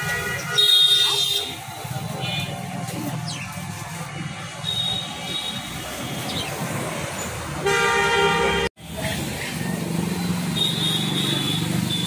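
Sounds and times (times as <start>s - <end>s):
street traffic: 0.0s - 12.0s
vehicle horn: 7.6s - 8.7s, 10.6s - 12.0s.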